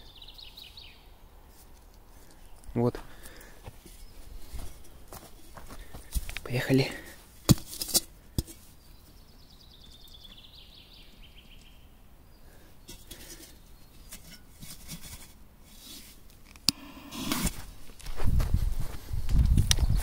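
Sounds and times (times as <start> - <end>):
footsteps crunching: 2.8 - 8.8, 17.3 - 20.0.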